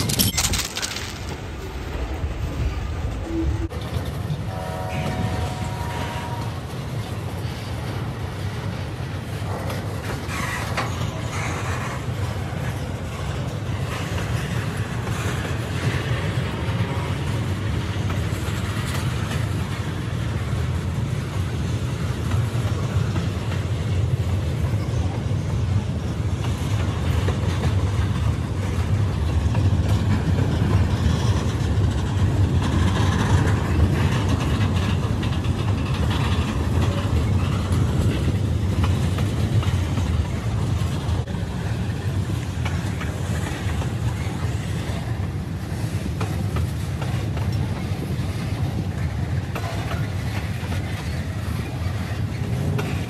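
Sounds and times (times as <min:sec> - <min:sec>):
freight train rumbling: 0:00.0 - 0:53.0
brief squealing tone: 0:03.2 - 0:03.9.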